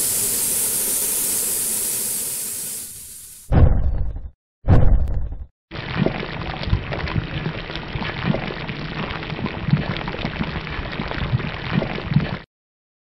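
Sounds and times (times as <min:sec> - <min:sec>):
rain-like hiss: 0:00.0 - 0:03.5
crackles and low thumps: 0:03.5 - 0:10.4.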